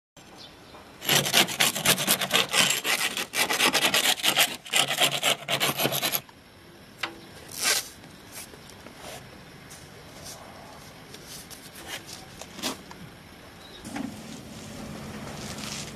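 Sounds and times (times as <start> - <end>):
hand scraper scraping stucco wall: 1.0 - 6.2.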